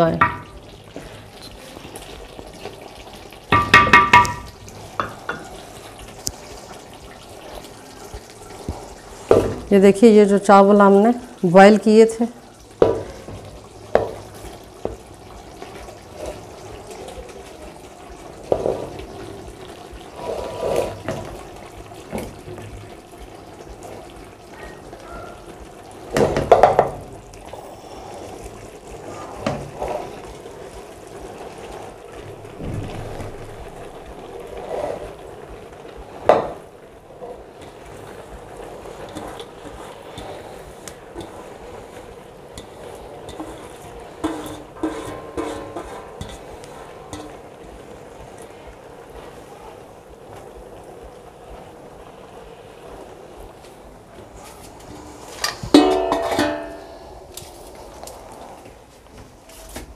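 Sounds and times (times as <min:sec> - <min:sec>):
metal tray knocking on pot: 0:00.1 - 0:00.6, 0:03.5 - 0:05.5, 0:55.7 - 0:56.9
rice sliding into pot: 0:20.1 - 0:21.4, 0:27.5 - 0:30.6, 0:31.3 - 0:48.1.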